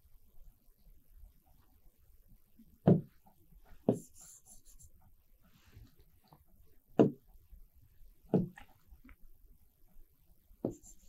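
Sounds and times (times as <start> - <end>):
stylus tapping touchscreen: 10.6 - 11.0.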